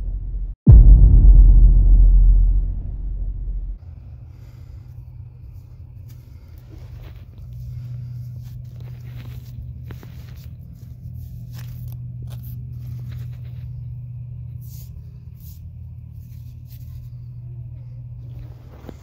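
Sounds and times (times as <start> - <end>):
steady low rumble: 0.0 - 19.0
fingers scratching in sand: 5.6 - 17.5.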